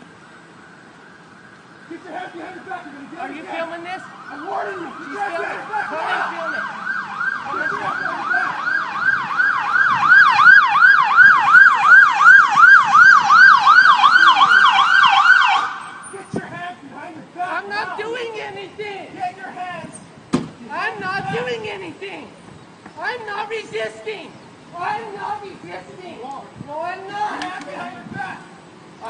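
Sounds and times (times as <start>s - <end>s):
siren yelping: 1.9s - 16.4s.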